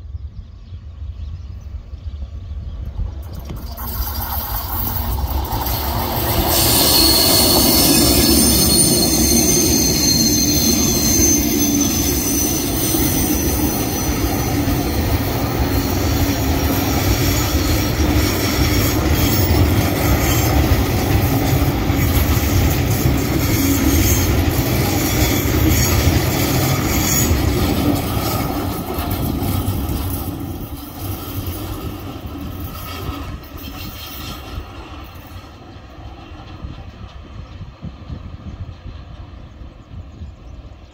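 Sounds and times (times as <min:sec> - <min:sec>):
diesel locomotives passing: 0:00.0 - 0:40.9
wagons rumbling on rails: 0:01.5 - 0:40.9
high-pitched wheel squeal: 0:03.3 - 0:30.3.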